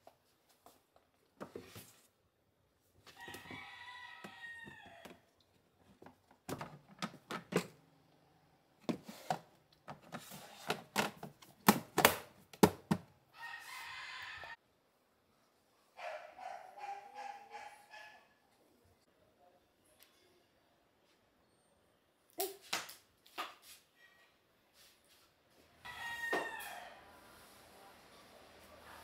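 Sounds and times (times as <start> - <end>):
plastic bins knocking on wood: 10.7 - 13.1.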